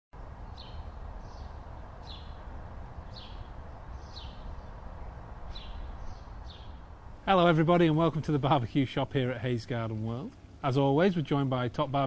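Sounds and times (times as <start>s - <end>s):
low background rumble: 0.2s - 12.0s
small bird chirping: 0.4s - 6.8s.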